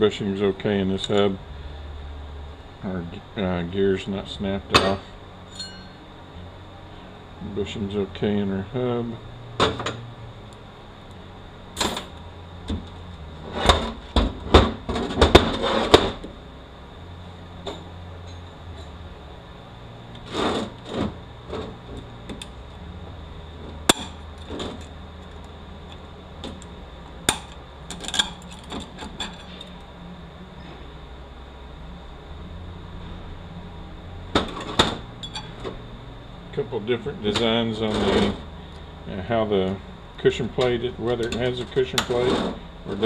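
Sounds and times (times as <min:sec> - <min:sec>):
metal parts knocking and clinking: 0:27.3 - 0:29.7.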